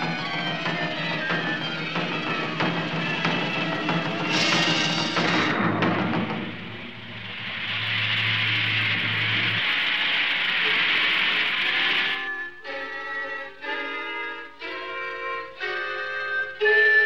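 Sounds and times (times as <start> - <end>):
cartoon hissing rush: 4.3 - 12.2
low hum: 4.6 - 12.4.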